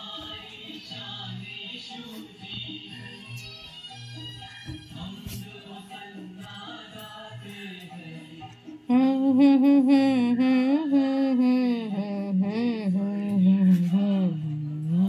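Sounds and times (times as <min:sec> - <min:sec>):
quiet background music: 0:00.0 - 0:15.0
person singing chant-like melody: 0:07.8 - 0:15.0.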